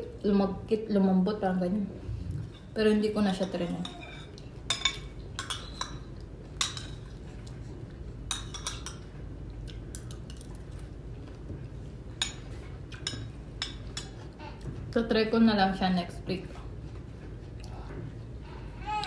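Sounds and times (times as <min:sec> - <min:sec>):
low background hum: 0:00.0 - 0:19.0
cutlery clinking on a plate: 0:03.4 - 0:07.1, 0:08.3 - 0:09.2.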